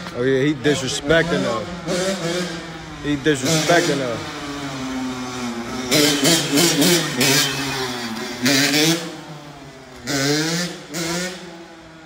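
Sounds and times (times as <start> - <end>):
dirt bike engine revving: 0.1 - 12.0.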